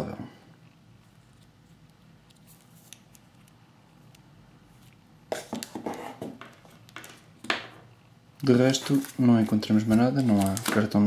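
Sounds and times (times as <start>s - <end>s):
earbuds clicking and rattling on desk: 5.3s - 7.7s.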